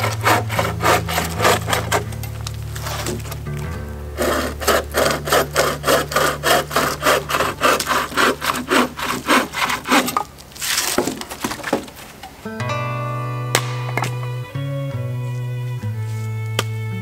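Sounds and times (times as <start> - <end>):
hand saw cutting wood: 0.0 - 3.4, 4.2 - 11.9.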